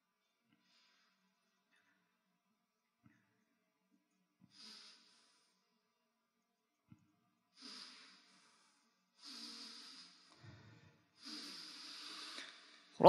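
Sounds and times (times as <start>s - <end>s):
faint breaths: 0.4s - 2.2s, 4.4s - 6.0s, 6.8s - 13.0s.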